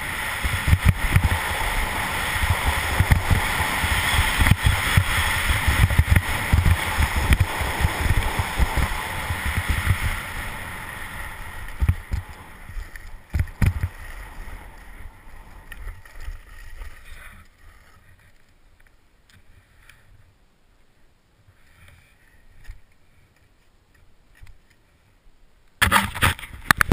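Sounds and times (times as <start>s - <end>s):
wind buffeting microphone: 0.0s - 15.6s
skis scraping over snow: 0.0s - 18.4s.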